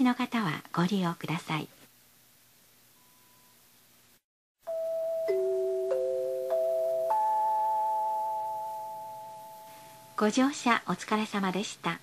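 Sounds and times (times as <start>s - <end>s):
faint hum: 1.9s - 4.2s, 5.3s - 10.9s
bell-like chime notes: 4.7s - 10.2s.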